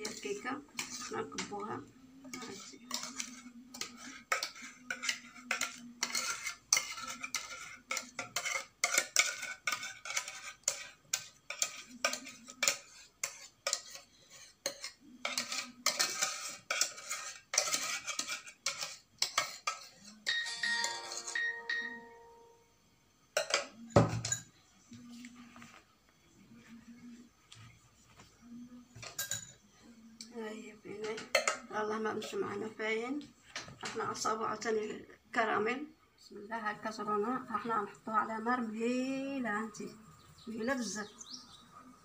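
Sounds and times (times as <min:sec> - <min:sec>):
utensil scraping a metal saucepan: 0:00.0 - 0:21.9.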